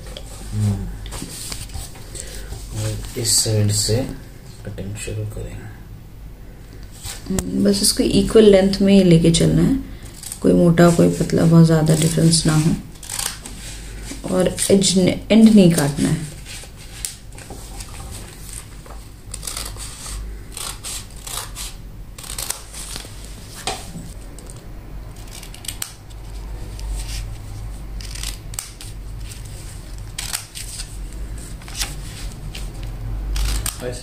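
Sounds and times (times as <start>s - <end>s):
scissors cutting paper: 10.1s - 14.8s, 15.5s - 23.3s, 25.2s - 34.0s.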